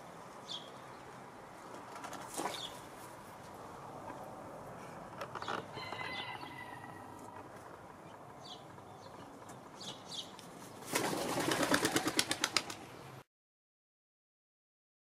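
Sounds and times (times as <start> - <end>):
small birds chirping: 0.4 - 1.2, 7.2 - 10.7.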